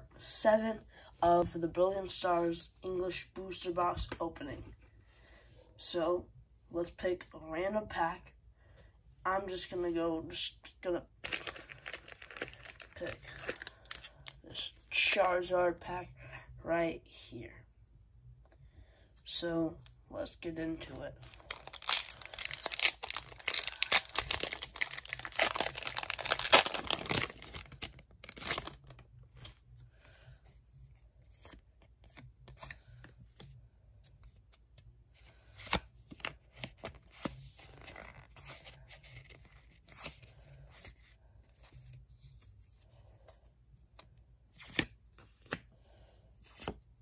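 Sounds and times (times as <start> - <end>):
cards rustling and clicking: 11.2 - 14.4, 21.2 - 29.8, 30.8 - 45.7
foil wrapper crinkling and tearing: 11.2 - 14.4, 21.2 - 29.0.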